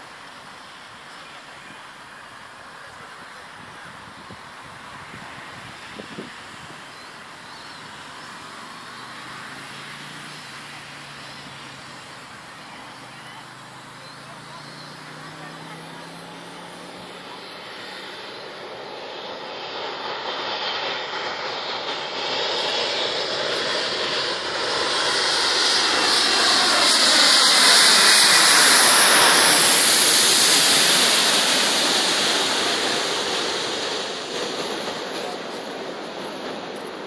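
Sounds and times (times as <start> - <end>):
jet airliner passing overhead: 0.0 - 37.0.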